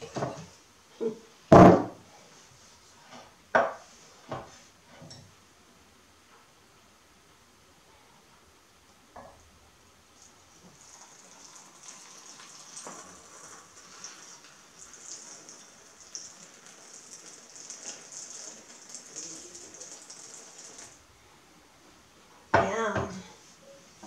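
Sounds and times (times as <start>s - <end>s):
liquid trickling into a mug: 10.2s - 21.0s.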